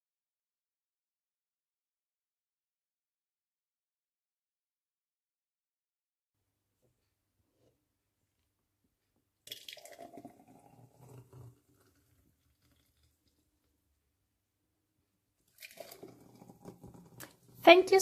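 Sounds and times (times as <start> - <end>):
thick smoothie pouring: 9.4 - 13.9, 15.4 - 17.6.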